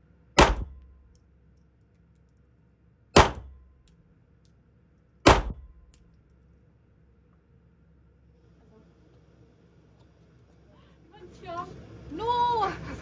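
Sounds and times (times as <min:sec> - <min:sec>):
pistol shots: 0:00.4 - 0:01.0, 0:03.2 - 0:03.7, 0:05.3 - 0:06.0.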